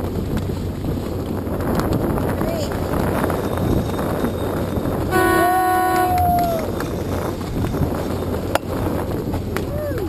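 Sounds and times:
water noise: 0.0 - 10.0
wind: 0.0 - 10.0
horn blast: 5.1 - 6.4
higher tone sliding down: 5.1 - 6.7.

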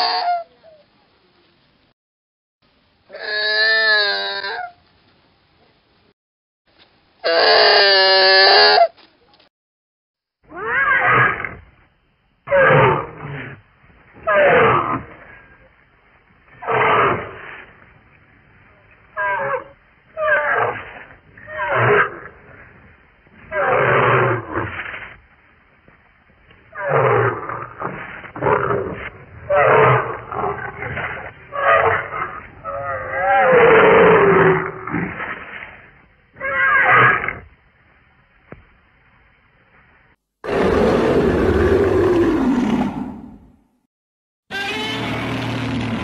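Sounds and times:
buzzy creature call: 3.1 - 4.8, 7.2 - 9.0, 44.5 - 45.4
loud rough animal calls: 7.2 - 9.0, 14.2 - 15.7, 16.5 - 17.9, 19.0 - 25.2, 26.6 - 37.5, 40.5 - 43.4.

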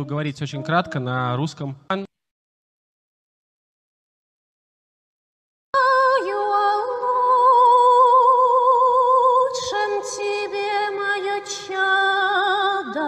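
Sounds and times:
women singing in harmony: 5.8 - 13.0.

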